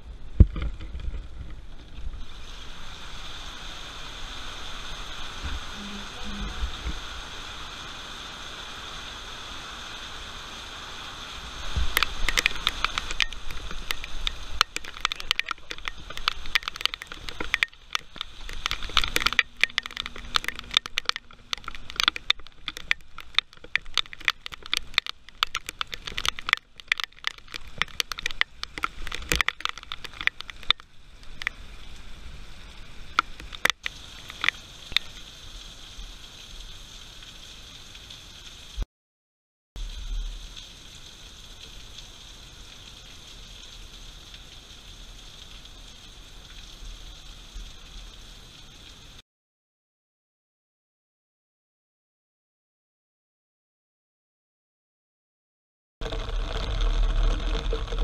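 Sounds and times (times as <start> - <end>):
heavy rain: 0.0 - 38.8, 39.8 - 49.2, 56.0 - 58.0
raindrops striking camera: 4.0 - 7.8, 11.1 - 32.1, 32.7 - 38.9, 56.0 - 58.0.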